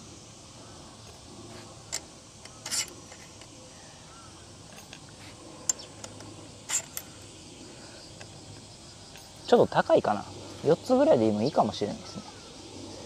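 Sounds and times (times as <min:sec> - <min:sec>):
metal spacer scraping: 0:01.5 - 0:03.5, 0:04.7 - 0:07.2
small metal parts clicking: 0:01.9 - 0:03.6, 0:04.7 - 0:07.2.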